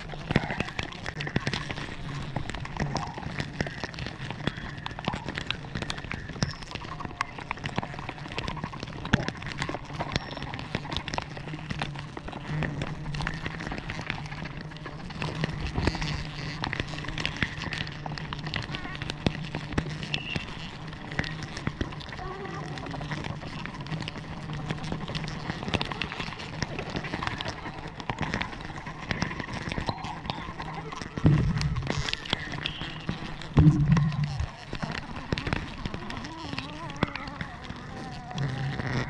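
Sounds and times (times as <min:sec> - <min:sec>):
bees buzzing: 0:31.3 - 0:34.8.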